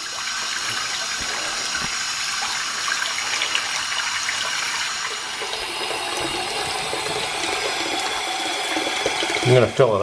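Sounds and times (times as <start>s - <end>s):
faucet water filling sink: 0.0s - 10.0s.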